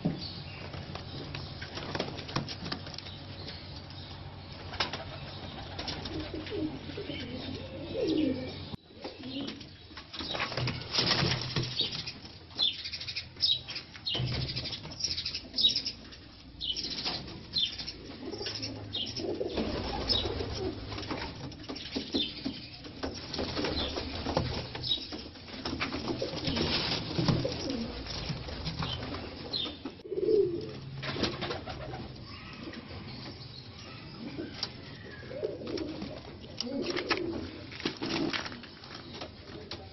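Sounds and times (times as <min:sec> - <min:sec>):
pigeons cooing: 0:04.6 - 0:09.7, 0:16.6 - 0:21.4, 0:25.7 - 0:38.5
wing flaps and rustling: 0:16.9 - 0:30.0.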